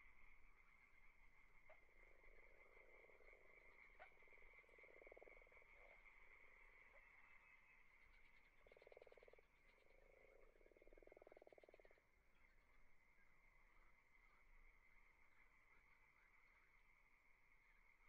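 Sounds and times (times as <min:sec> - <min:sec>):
frog croaking: 0:01.6 - 0:12.1.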